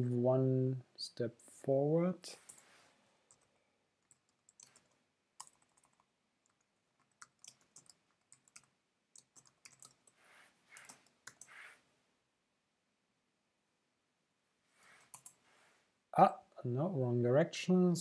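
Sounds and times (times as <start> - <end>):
typing on a computer keyboard: 3.3 - 10.2, 10.8 - 11.5, 15.1 - 15.4.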